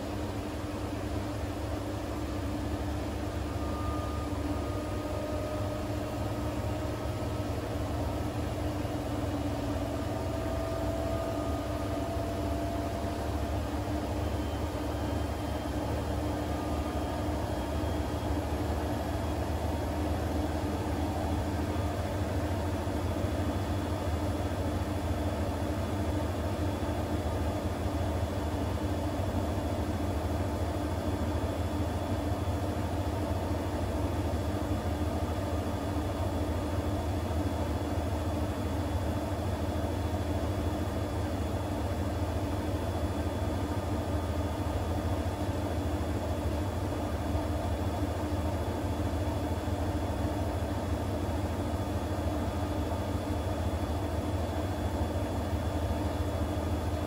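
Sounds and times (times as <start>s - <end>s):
washing machine spinning: 0.0s - 57.0s.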